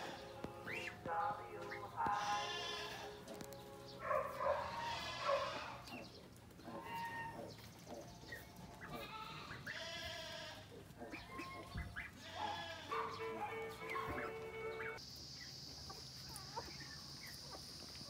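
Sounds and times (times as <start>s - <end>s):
background music: 0.0s - 4.9s
farm animals bleating: 0.0s - 15.0s.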